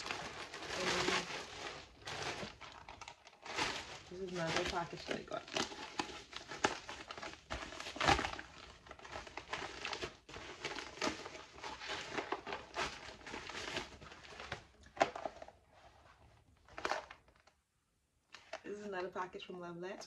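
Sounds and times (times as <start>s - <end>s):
plastic mailer crinkling: 0.0s - 15.6s, 16.6s - 17.6s.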